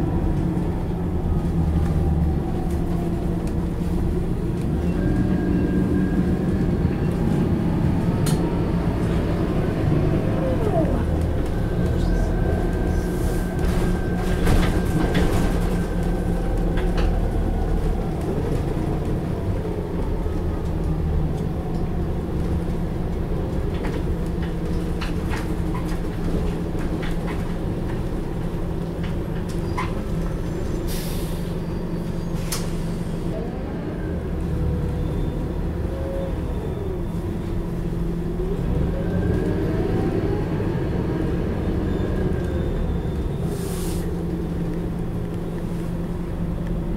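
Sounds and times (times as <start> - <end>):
bus engine droning: 0.0 - 46.9
interior rattles and clicks: 13.5 - 30.6.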